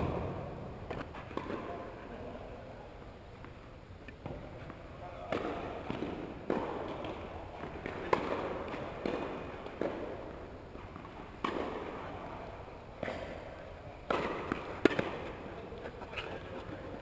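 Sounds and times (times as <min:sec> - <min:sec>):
tennis ball bouncing on court: 0:00.0 - 0:01.7, 0:04.2 - 0:12.0, 0:14.0 - 0:15.4
racket hitting tennis ball: 0:00.0 - 0:01.8, 0:04.2 - 0:12.1, 0:12.9 - 0:15.5.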